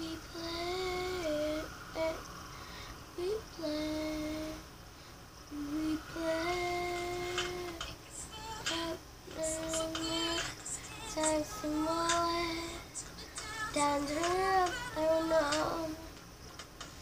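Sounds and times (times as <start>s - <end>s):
child singing held notes: 5.5s - 16.2s.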